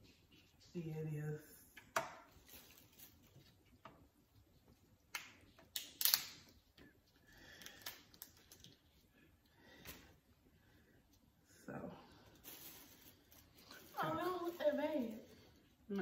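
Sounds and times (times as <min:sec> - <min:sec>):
crab shell cracking: 0:05.7 - 0:06.4.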